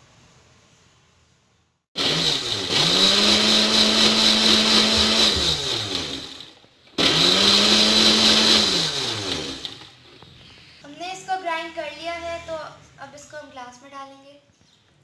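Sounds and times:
blender motor whine: 2.0 - 9.9.

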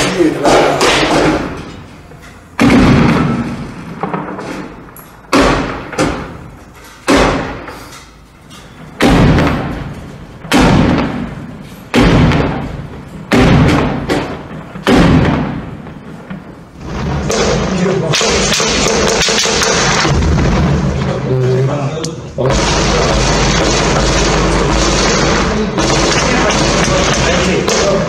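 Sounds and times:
loud gunshots with echo: 2.6 - 4.0, 5.3 - 6.4, 9.0 - 9.9, 10.5 - 16.0, 16.8 - 21.4, 22.4 - 28.0.

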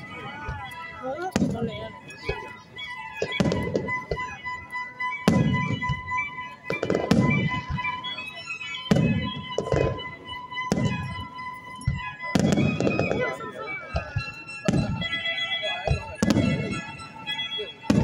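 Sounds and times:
music playing: 0.0 - 18.0
fireworks bangs and booms: 0.4 - 2.4, 3.2 - 4.3, 5.3 - 6.1, 6.7 - 8.2, 8.9 - 13.4, 14.0 - 15.0, 15.8 - 16.9.

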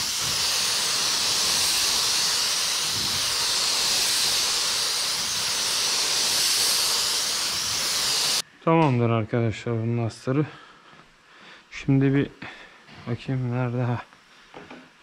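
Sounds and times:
paint spray gun hissing: 0.0 - 8.4.

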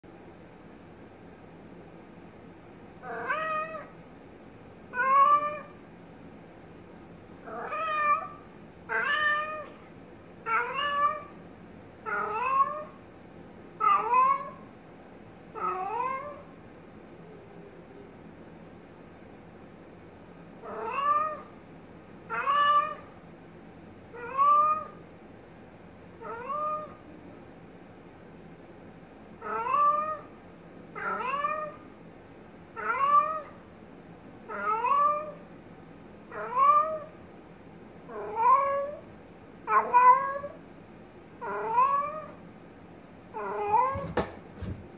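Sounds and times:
cat meowing: 3.0 - 4.0, 4.9 - 5.8, 7.5 - 11.4, 12.0 - 13.0, 13.8 - 14.7, 15.6 - 16.5, 20.6 - 21.5, 22.3 - 23.1, 24.2 - 25.0, 26.2 - 27.1, 29.4 - 30.3, 31.0 - 31.8, 32.8 - 33.6, 34.5 - 35.4, 36.3 - 37.2, 38.1 - 39.1, 39.7 - 40.6, 41.4 - 42.4, 43.3 - 44.3.

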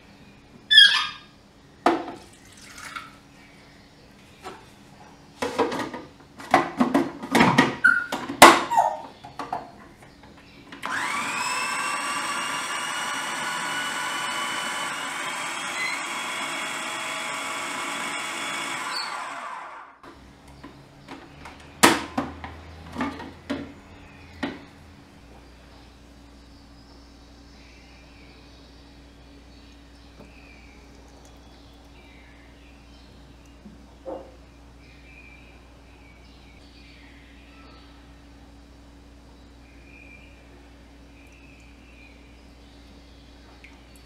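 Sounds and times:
food processor motor whining: 10.8 - 20.0.

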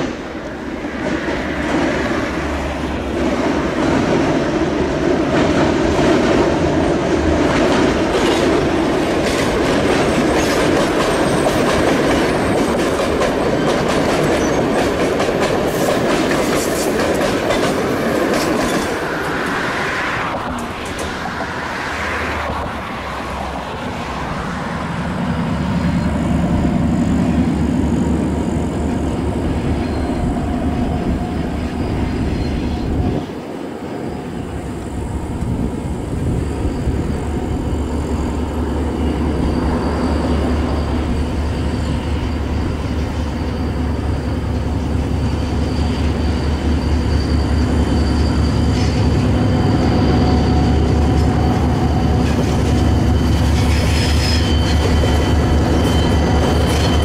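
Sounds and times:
diesel train engine running: 0.0 - 57.0
train wheels clacking over rail joints: 7.4 - 21.8, 50.6 - 57.0.

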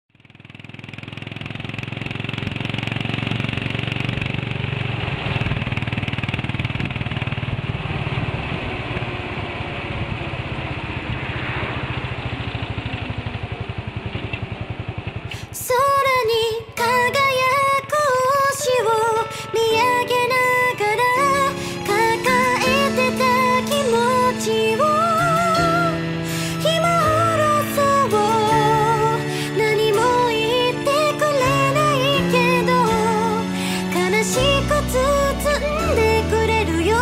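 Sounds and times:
motorcycle engine running: 0.1 - 37.0
wind rush: 7.6 - 13.9
music with synthetic singing voice: 15.6 - 37.0.

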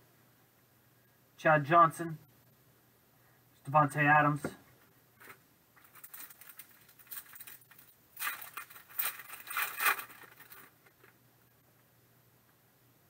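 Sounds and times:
foil wrapper crinkling and tearing: 5.8 - 11.1.

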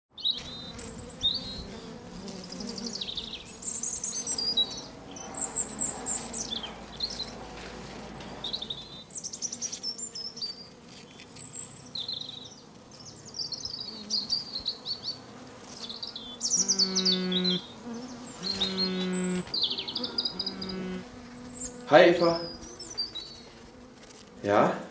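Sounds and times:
birds chirping: 0.1 - 23.8
mobile phone buzzing: 18.4 - 19.5.

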